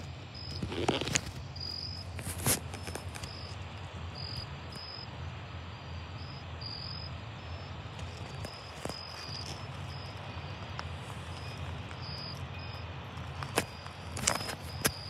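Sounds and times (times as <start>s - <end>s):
crickets chirping: 0.0s - 15.0s
steady low rumble: 1.2s - 15.0s.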